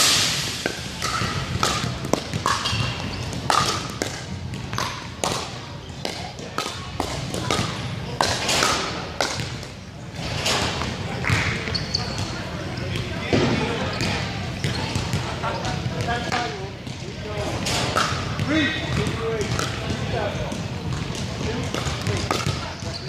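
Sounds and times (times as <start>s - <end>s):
paddles striking plastic ball: 0.6s - 9.6s
ball bouncing on wooden floor: 1.0s - 5.4s.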